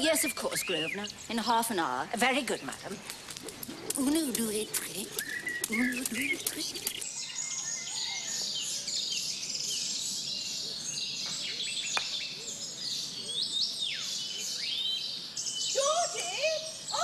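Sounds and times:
small birds chirping: 0.0 - 17.0
falling bird whistles: 5.1 - 6.6.

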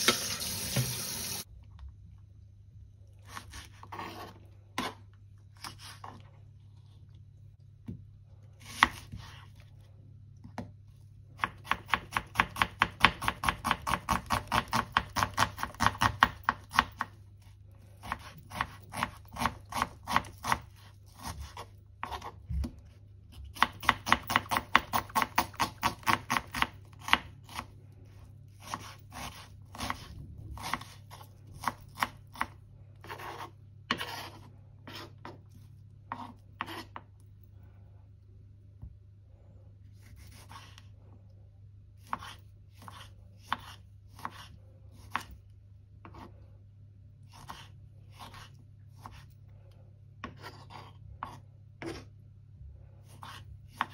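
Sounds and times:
low steady hum: 0.0 - 53.9
knife chopping on cutting board: 8.6 - 9.4, 11.4 - 17.1, 18.0 - 22.4, 23.4 - 27.7, 28.6 - 35.4, 36.1 - 37.1, 42.0 - 45.3, 53.2 - 53.9.

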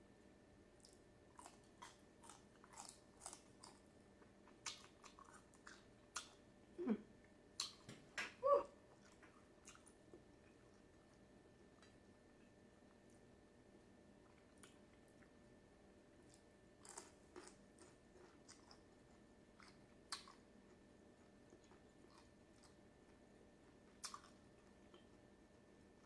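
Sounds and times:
celery crunching while chewed: 0.8 - 6.4, 16.2 - 25.2
closed-mouth hum: 6.7 - 8.8.

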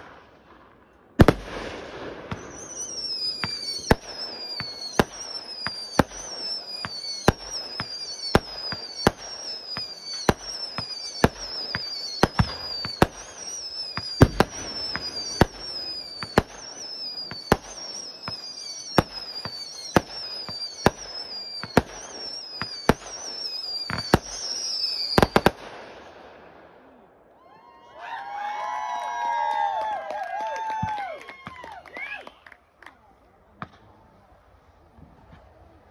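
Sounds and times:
falling firework whistle: 1.2 - 25.7, 27.4 - 32.6
firework shells banging: 2.3 - 25.6.

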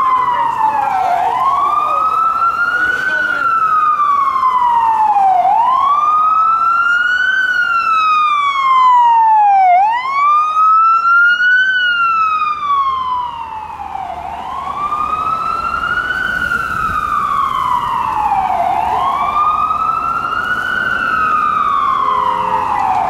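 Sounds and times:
ambulance siren wailing: 0.0 - 23.0.

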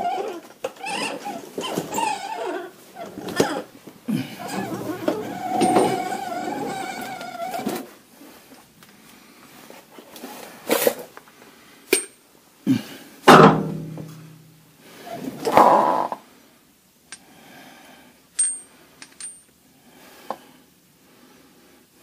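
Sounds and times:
tools and metal parts clanking: 4.4 - 7.8, 18.4 - 19.5.

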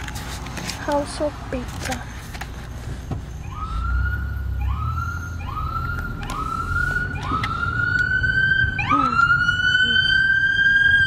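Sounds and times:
emergency vehicle siren: 3.0 - 11.0.

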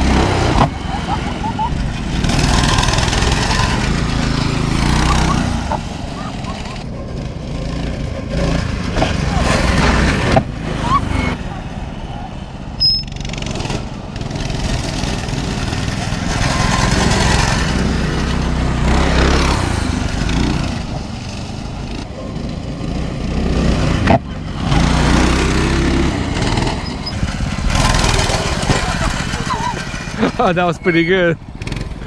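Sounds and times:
mini bike engines revving: 0.0 - 32.0.

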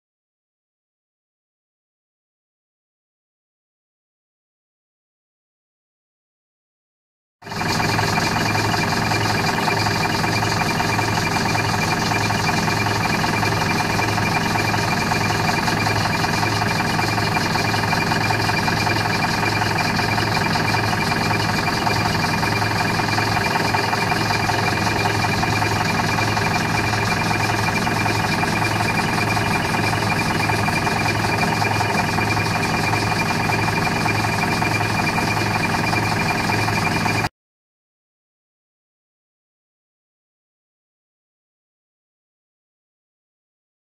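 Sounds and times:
bus diesel engine idling: 7.5 - 37.3.

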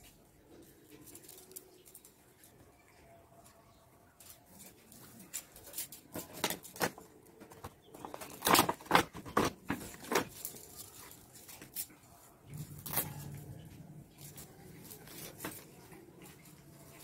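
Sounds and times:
plastic packaging crinkling: 6.1 - 15.9.

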